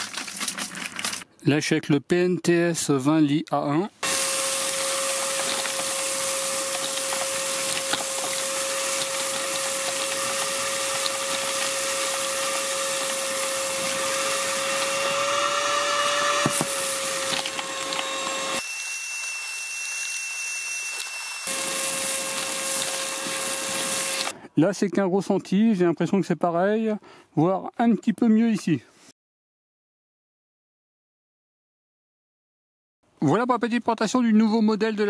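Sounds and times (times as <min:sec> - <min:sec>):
vacuum motor whine: 0:04.0 - 0:24.3.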